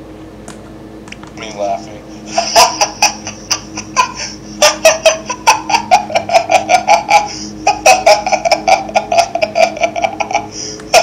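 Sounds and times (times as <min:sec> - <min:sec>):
person laughing: 0:02.2 - 0:11.0.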